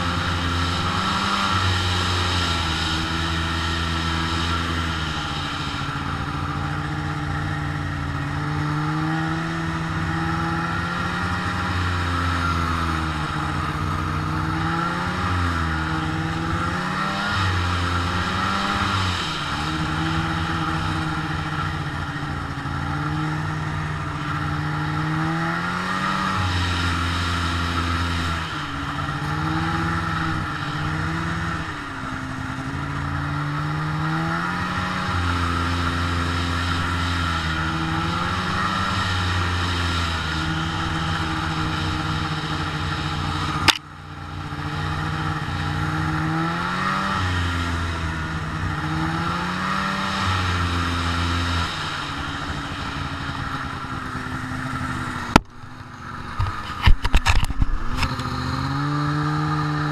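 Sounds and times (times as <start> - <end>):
snowmobile engine revving: 0.0 - 59.9
sharp click: 43.6 - 43.9.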